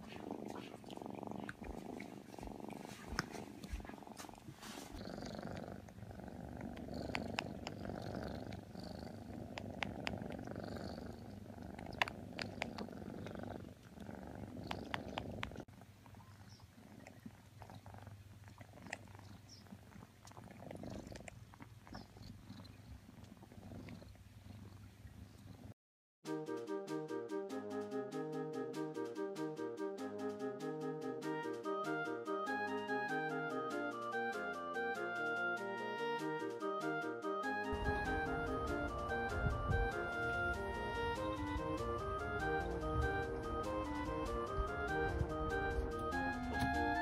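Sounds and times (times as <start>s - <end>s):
cat purring: 0.0s - 25.8s, 37.7s - 47.0s.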